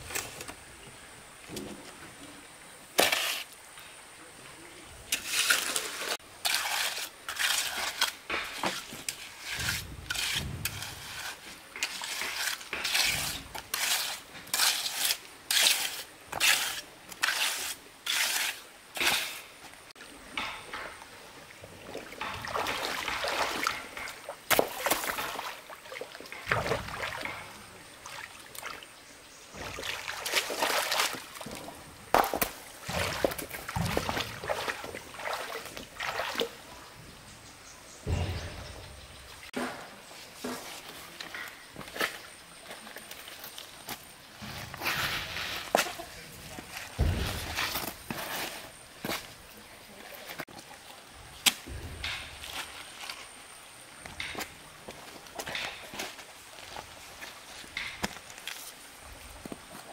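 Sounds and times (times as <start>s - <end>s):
water splashing and sloshing: 5.0s - 37.3s, 38.0s - 59.9s
wash of moving water: 21.4s - 28.9s, 29.5s - 36.8s.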